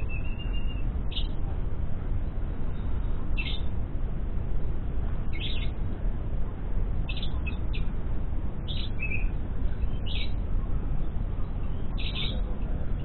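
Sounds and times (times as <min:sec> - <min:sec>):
lovebird chirping: 0:00.0 - 0:01.4, 0:02.7 - 0:03.7, 0:05.3 - 0:05.8, 0:07.0 - 0:07.9, 0:08.6 - 0:10.4, 0:11.4 - 0:12.5
low rumble: 0:00.0 - 0:13.0.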